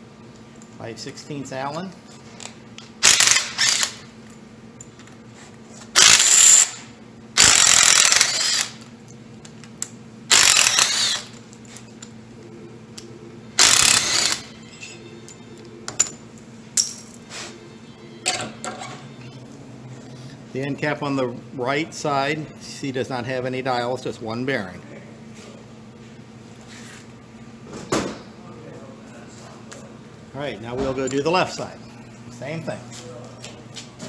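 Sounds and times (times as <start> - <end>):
impact driver bursts: 3.0 - 4.1, 6.0 - 8.8, 10.3 - 11.3, 13.6 - 14.5.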